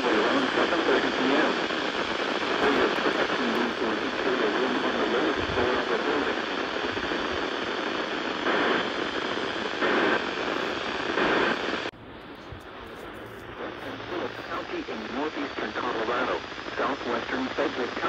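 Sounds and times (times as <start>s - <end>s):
faint radio voice: 0.0s - 7.6s, 12.3s - 18.0s
radio static hiss: 0.0s - 18.0s.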